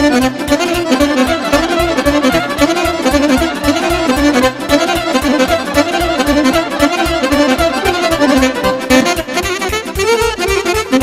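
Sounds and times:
bass and drum beat: 0.0 - 11.0
fast fiddle melody: 0.0 - 11.0.

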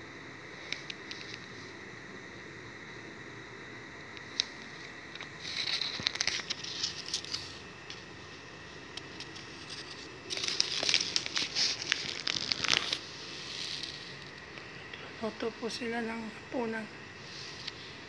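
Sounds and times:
crinkly rustling and crackling: 0.6 - 1.7, 4.2 - 15.2.

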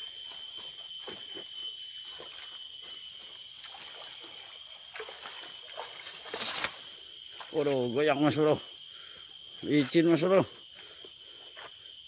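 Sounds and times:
forest insects droning: 0.0 - 12.0
water trickling and sloshing: 3.6 - 6.8.

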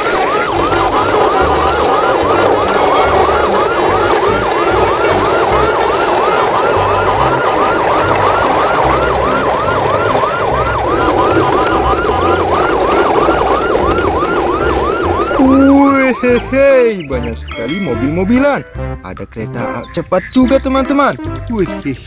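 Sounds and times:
siren yelping: 0.0 - 18.9.

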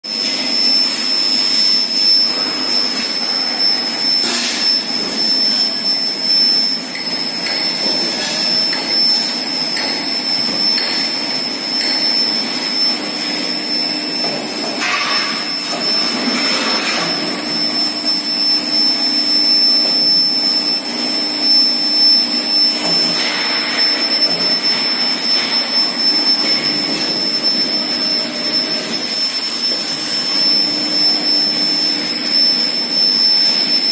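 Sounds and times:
high-pitched whine: 0.1 - 33.9
machinery drone: 2.2 - 33.9.

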